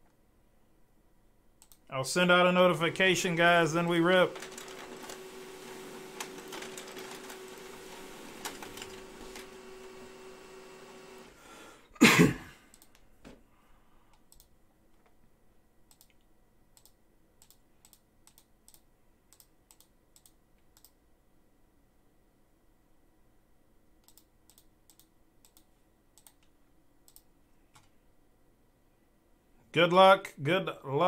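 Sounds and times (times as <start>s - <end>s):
keyboard typing clicks: 12.7s - 13.0s, 14.2s - 15.2s, 15.9s - 21.0s, 24.0s - 27.9s.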